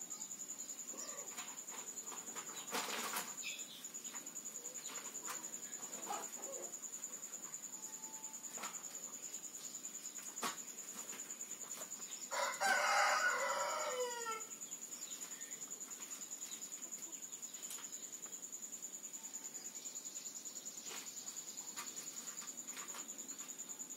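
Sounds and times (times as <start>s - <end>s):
rooster crowing: 12.3s - 14.5s.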